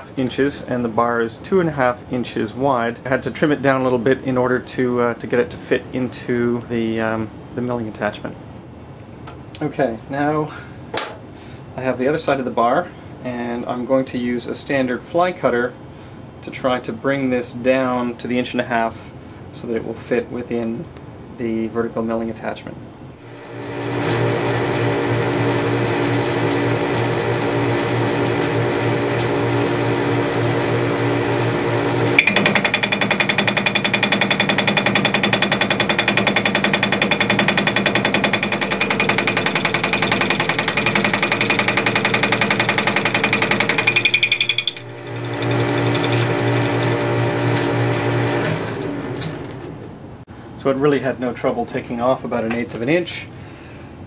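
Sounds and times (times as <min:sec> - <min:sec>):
lathe running: 0:23.2 - 0:49.9
fly cutter chattering rattle: 0:32.2 - 0:46.2.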